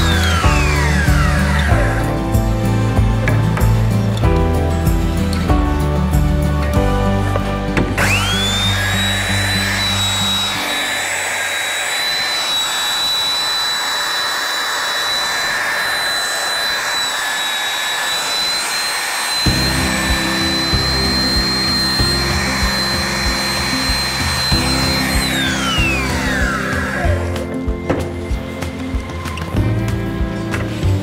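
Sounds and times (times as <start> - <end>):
background music with a beat: 0.0 - 8.8, 19.5 - 31.0
belt sander whining on wood: 0.0 - 31.0.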